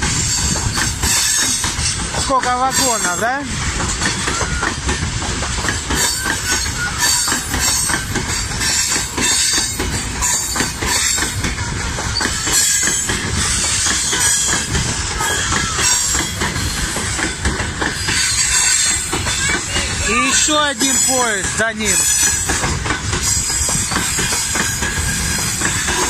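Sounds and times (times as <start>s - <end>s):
train wheels rumbling on rail: 0.0s - 26.0s
high wheel squeal: 0.1s - 2.0s, 4.0s - 5.0s, 5.9s - 17.3s, 17.9s - 26.0s
clicking over rail joints: 3.6s - 20.0s.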